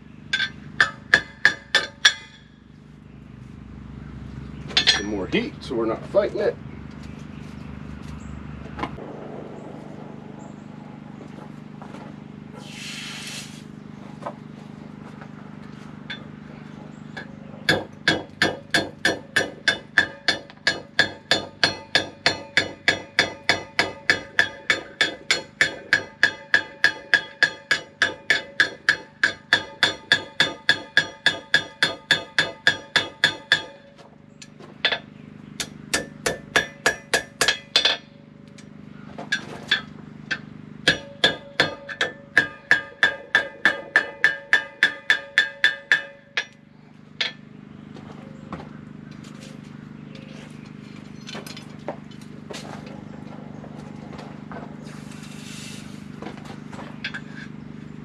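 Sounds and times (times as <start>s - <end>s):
hammer striking steel on anvil: 0.3s - 2.6s, 4.7s - 5.2s, 17.2s - 33.9s, 34.8s - 38.1s, 39.3s - 47.4s.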